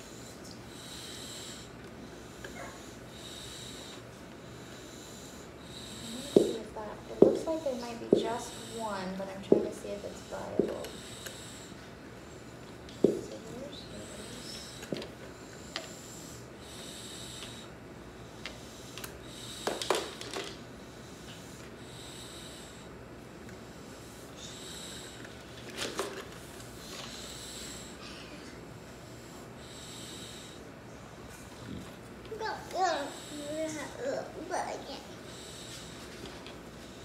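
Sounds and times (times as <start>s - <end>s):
dog breathing through nose: 0.0s - 12.7s, 13.7s - 17.7s, 26.7s - 28.1s, 34.9s - 37.0s.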